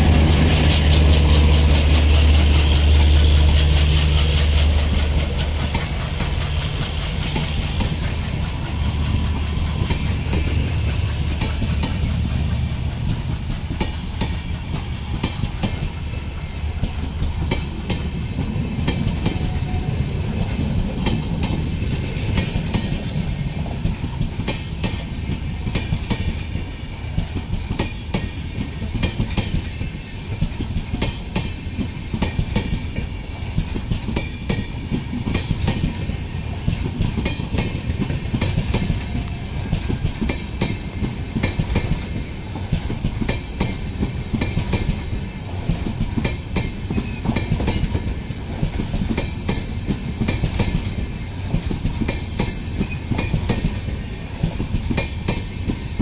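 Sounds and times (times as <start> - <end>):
train wheels clicking over rail joints: 0.0 - 56.0.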